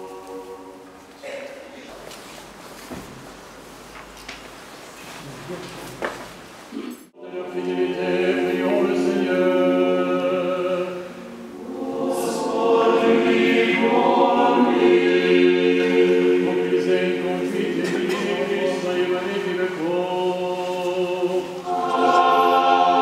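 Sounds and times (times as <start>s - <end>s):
choir singing chant: 0.0s - 1.2s, 7.2s - 23.0s.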